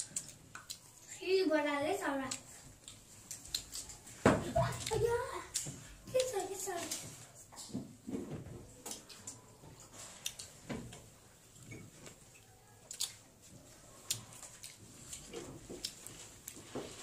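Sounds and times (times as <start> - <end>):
chewing with wet mouth clicks: 0.0 - 1.2, 2.3 - 4.1, 12.3 - 16.6.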